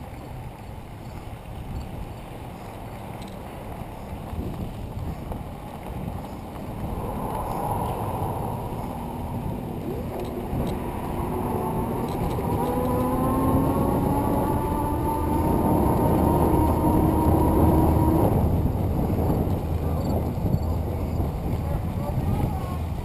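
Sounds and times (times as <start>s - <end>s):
wind rumbling on microphone: 0.0s - 23.0s
rising multi-pitched whine: 6.8s - 20.9s.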